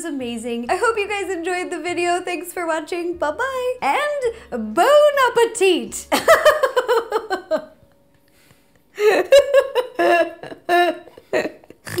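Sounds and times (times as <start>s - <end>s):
woman laughing: 6.1s - 7.8s, 9.0s - 12.0s.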